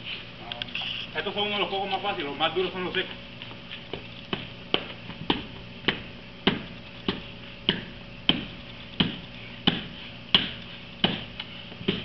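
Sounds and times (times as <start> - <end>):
hand striking coconut: 4.3 - 11.3.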